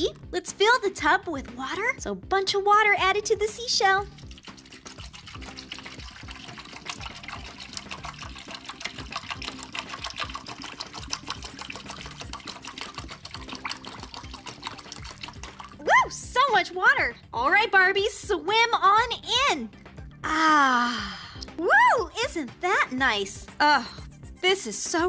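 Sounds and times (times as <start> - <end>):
quiet background music: 0.0 - 25.0
water pouring and splashing: 3.9 - 16.4.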